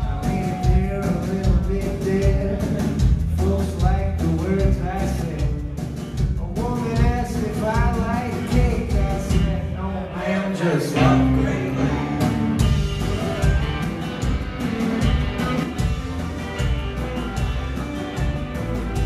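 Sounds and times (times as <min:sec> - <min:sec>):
man singing: 0:00.0 - 0:12.3
rock band playing: 0:00.0 - 0:19.0.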